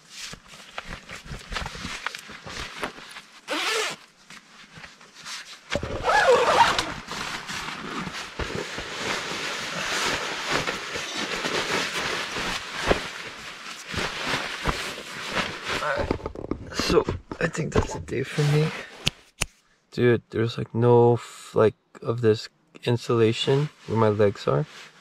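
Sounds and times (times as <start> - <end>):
fabric rustling and scraping: 0.0 - 19.4
zipper being pulled: 3.5 - 4.0, 5.8 - 8.4.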